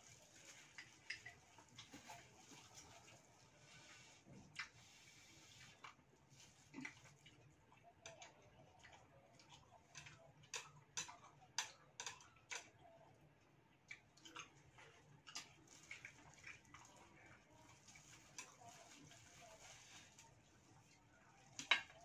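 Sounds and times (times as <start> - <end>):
chopsticks clicking on dishes: 8.0 - 12.8.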